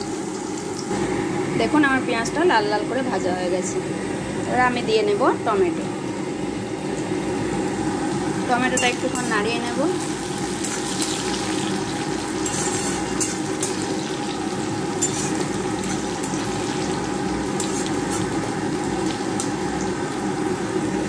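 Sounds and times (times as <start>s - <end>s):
vegetables sizzling in oil: 0.0s - 21.0s
spatula scraping pan: 10.6s - 14.2s, 14.9s - 18.4s.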